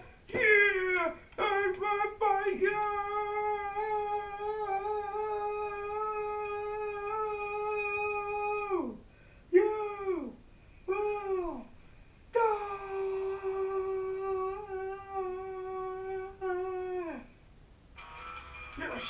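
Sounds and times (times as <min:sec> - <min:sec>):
high voice crying: 0:00.0 - 0:11.7, 0:12.4 - 0:17.3.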